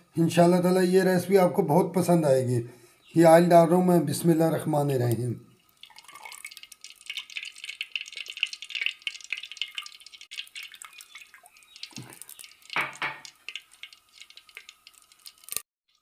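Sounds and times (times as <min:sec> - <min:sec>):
oil trickling into a pot: 0:05.5 - 0:16.0.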